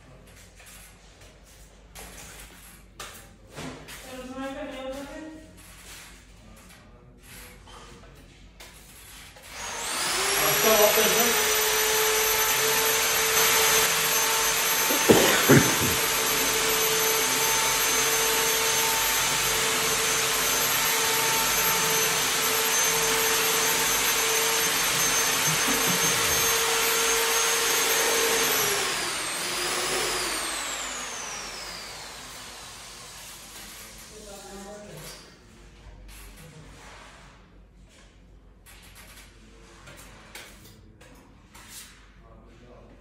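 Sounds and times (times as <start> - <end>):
electric motor whining: 9.5 - 32.1
sharp knocks: 14.9 - 16.6.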